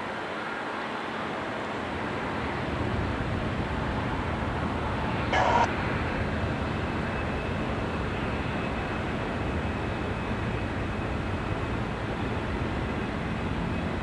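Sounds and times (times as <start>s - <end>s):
diesel locomotive idling: 2.3s - 5.7s
faint high whine: 3.8s - 13.9s.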